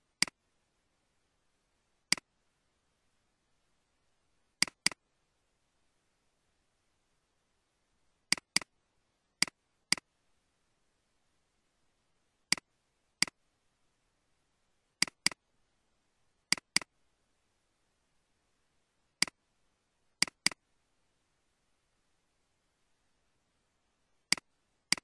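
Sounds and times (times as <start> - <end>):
computer mouse clicking: 2.1 - 2.3, 4.6 - 5.0, 8.3 - 8.7, 9.4 - 10.1, 12.5 - 13.4, 15.0 - 15.4, 16.5 - 16.9, 20.2 - 20.6, 24.3 - 25.0.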